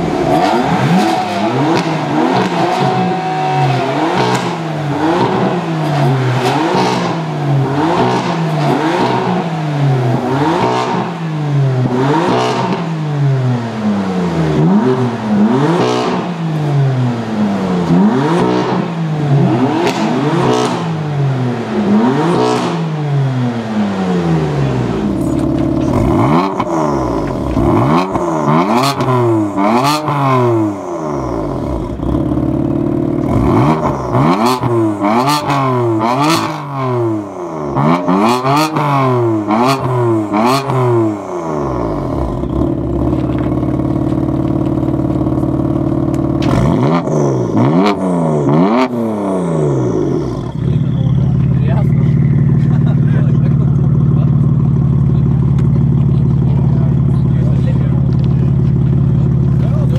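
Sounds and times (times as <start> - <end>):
car engine free-revving: 0.0 - 59.9
car engine idling: 0.0 - 59.9
exhaust pops between revs: 37.8 - 48.0.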